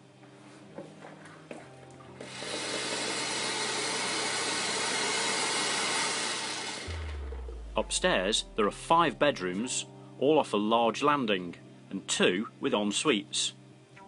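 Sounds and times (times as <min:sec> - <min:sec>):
hot water hissing from tap: 0:02.2 - 0:06.2.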